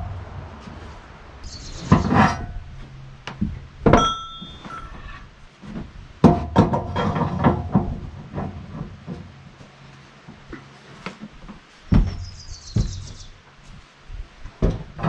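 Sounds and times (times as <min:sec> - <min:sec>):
knocks and scrapes on steel and wood: 0:00.0 - 0:13.8, 0:14.5 - 0:15.0
metallic clank: 0:01.4 - 0:05.3.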